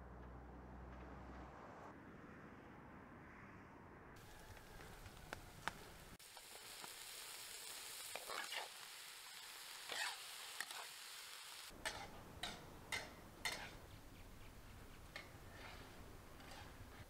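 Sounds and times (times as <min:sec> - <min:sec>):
onions sizzling in a pan: 0:05.6 - 0:13.8
metal spoon scraping: 0:11.8 - 0:13.9, 0:15.1 - 0:17.0.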